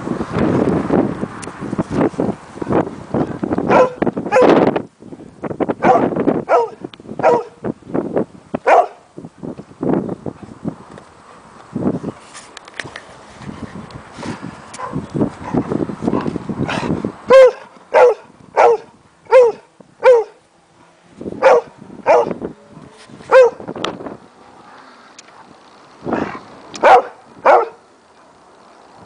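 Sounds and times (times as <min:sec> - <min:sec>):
dog barking: 0:03.7 - 0:04.5, 0:05.8 - 0:07.6, 0:08.7 - 0:09.0, 0:14.8 - 0:15.6, 0:17.3 - 0:20.4, 0:21.4 - 0:22.4, 0:23.3 - 0:23.6, 0:26.8 - 0:27.8.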